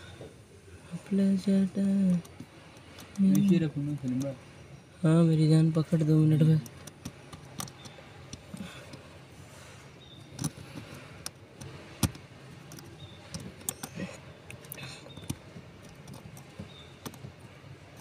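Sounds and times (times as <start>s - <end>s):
light clicks and taps: 1.8s - 4.5s, 6.4s - 9.1s, 10.2s - 18.0s.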